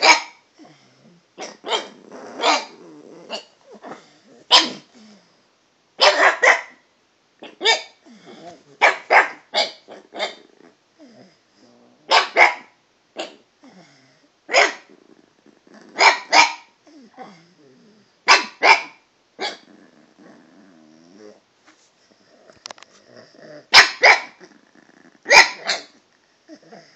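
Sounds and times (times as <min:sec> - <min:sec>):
dog growling: 0:00.6 - 0:05.4, 0:08.0 - 0:12.4, 0:13.2 - 0:18.3, 0:19.4 - 0:26.9
dog barking sharply: 0:06.0 - 0:06.8, 0:14.5 - 0:14.8, 0:18.3 - 0:19.6, 0:23.8 - 0:24.3, 0:25.3 - 0:25.9.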